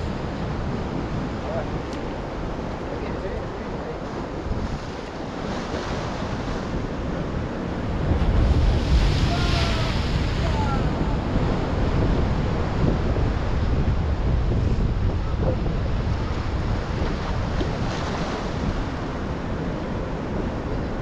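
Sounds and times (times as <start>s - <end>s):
waves breaking over rocks: 0.0s - 21.0s
wind buffeting microphone: 0.0s - 21.0s.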